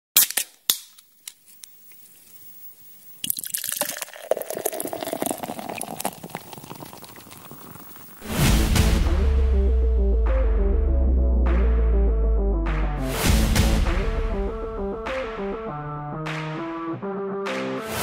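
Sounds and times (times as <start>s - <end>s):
liquid dripping: 3.2s - 8.1s
liquid pouring: 3.2s - 8.3s
electronic music: 8.2s - 18.0s.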